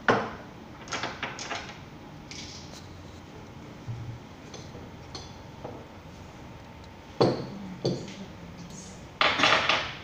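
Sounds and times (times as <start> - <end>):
glassware clinking on a tabletop: 7.2 - 8.2.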